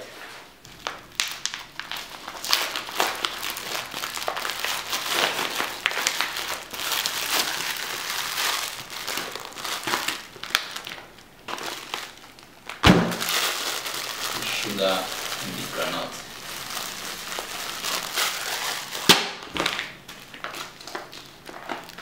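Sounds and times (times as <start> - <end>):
plastic snack packet crinkling: 0.6 - 22.0.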